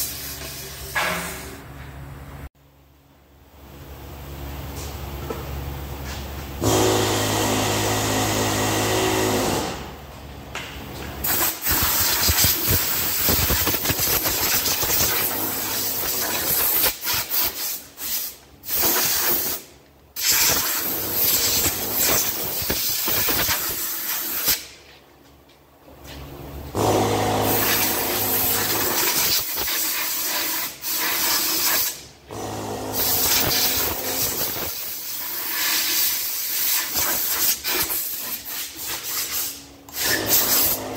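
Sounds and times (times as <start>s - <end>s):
compressed air hissing: 11.2s - 24.8s.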